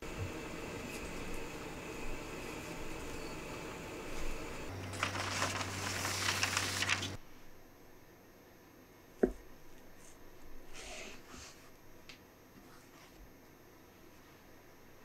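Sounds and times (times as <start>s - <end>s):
baking parchment crinkling: 4.1s - 7.2s.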